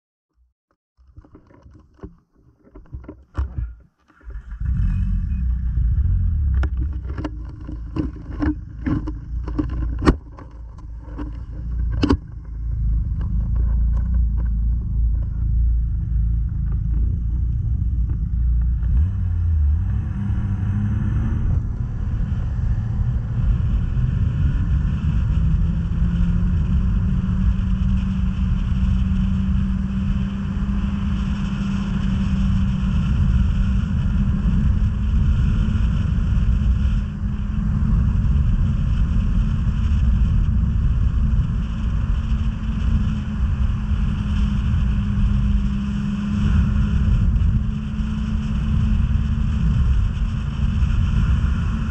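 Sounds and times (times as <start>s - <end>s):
sharp knocks and rattles: 1.0s - 4.4s, 6.5s - 15.4s
snowmobile engine and track drone: 1.1s - 51.9s.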